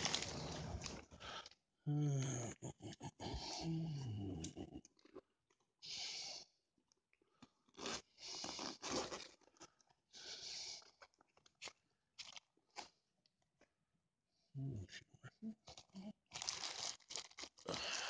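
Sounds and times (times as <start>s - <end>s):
plastic packing crinkling: 0.0s - 1.0s, 16.3s - 18.0s.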